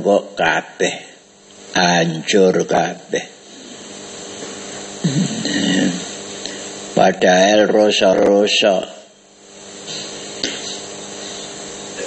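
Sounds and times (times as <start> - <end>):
man speaking: 0.0 - 1.2, 1.8 - 3.4, 7.0 - 9.1
background hiss: 0.0 - 12.0.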